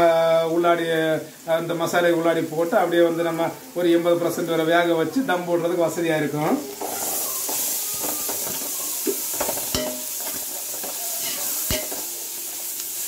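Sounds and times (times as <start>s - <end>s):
onions sizzling in oil: 0.0s - 13.0s
metal ladle scraping pot: 6.7s - 12.0s.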